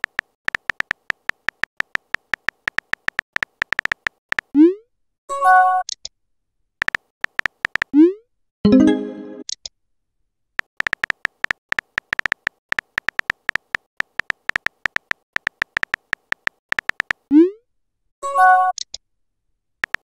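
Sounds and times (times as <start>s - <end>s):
phone keyboard typing clicks: 0.0s - 4.5s, 6.8s - 8.0s, 10.6s - 17.3s.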